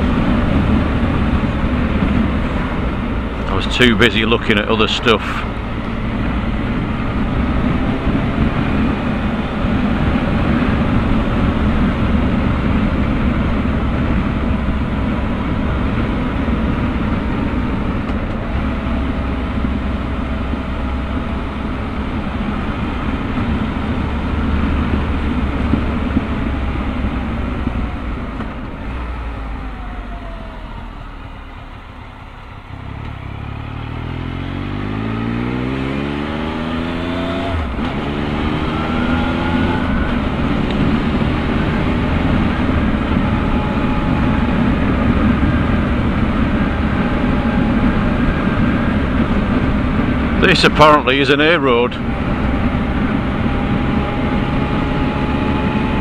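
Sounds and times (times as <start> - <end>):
motorcycle engine running: 0.0 - 56.0
wind rush on microphone: 5.2 - 28.9, 35.8 - 51.0.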